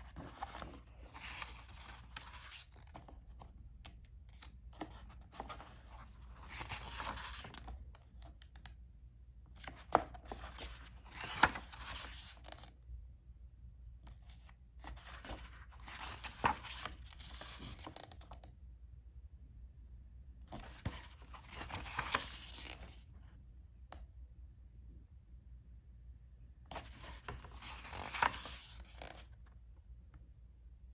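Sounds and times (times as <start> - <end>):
paper crackling: 0.0 - 3.1, 4.3 - 7.8, 9.6 - 12.7, 14.8 - 18.2, 20.5 - 23.0, 26.7 - 29.2
book pages turning: 0.0 - 8.7, 9.6 - 12.7, 14.1 - 18.5, 20.5 - 23.1, 26.7 - 29.4.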